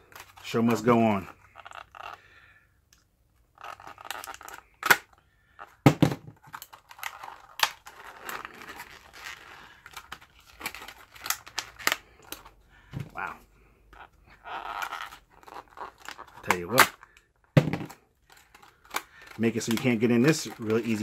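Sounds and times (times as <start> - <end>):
plastic packaging crinkling: 3.5 - 5.7, 6.4 - 12.6, 14.3 - 17.2, 17.9 - 21.0
sharp plastic cracks: 4.0 - 5.2, 5.8 - 8.0, 16.0 - 21.0.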